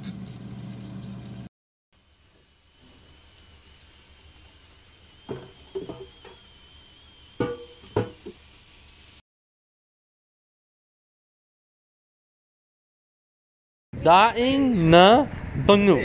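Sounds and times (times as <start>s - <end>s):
steady low hum: 0.0s - 9.2s
faint high whine: 2.0s - 9.2s
kitchenware clinking and knocking: 7.4s - 8.3s.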